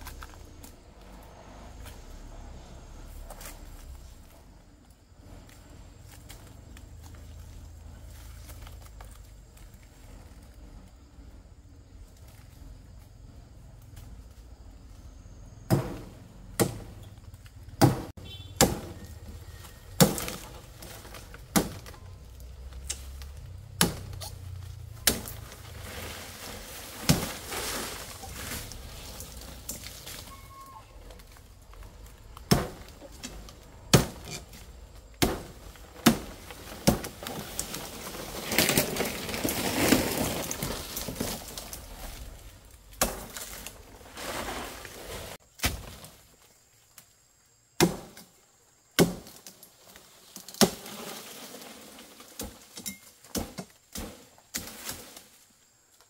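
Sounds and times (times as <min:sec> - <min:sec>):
leaves rustling: 0:00.0 - 0:47.6, 0:49.0 - 0:56.0
blade chopping palm stems: 0:15.7 - 0:17.0, 0:17.8 - 0:22.0, 0:22.6 - 0:30.3, 0:31.2 - 0:42.2, 0:42.9 - 0:43.8, 0:45.5 - 0:46.1, 0:47.8 - 0:48.3, 0:49.0 - 0:49.6, 0:50.2 - 0:55.3.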